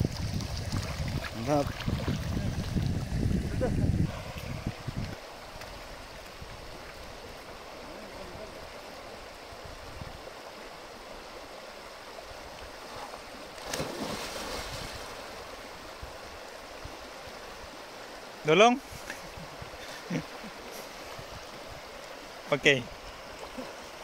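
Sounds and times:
river running over stones: 0.0 - 24.0
splash into water: 13.6 - 15.3.

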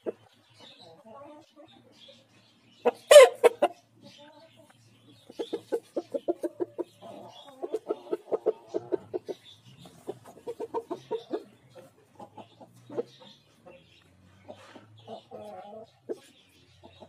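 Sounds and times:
rooster clucking: 2.8 - 3.8, 5.3 - 13.8.

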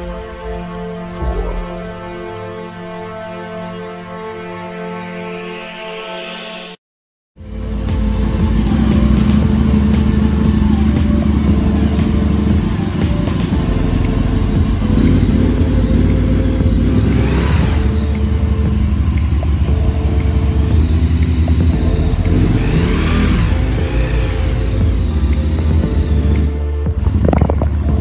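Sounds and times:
background music: 0.0 - 6.8, 7.4 - 28.0
motorcycle engine running: 7.4 - 28.0.

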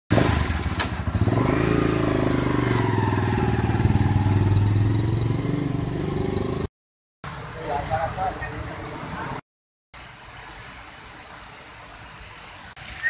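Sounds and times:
motorcycle engine pulling away: 0.1 - 6.7.

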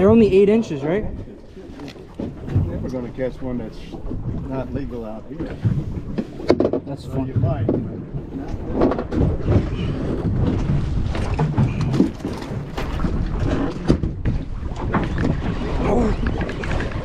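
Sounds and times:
sea rumbling: 0.0 - 17.0
wind buffeting microphone: 0.0 - 17.0
knocks and clatter: 5.4 - 15.6.

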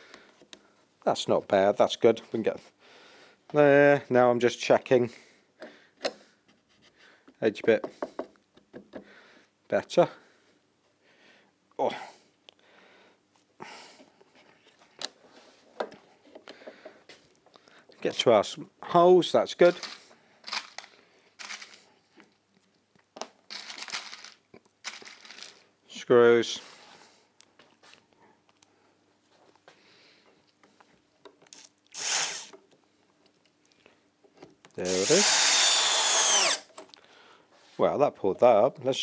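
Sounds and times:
screws rattling: 19.7 - 21.8, 23.5 - 25.6.

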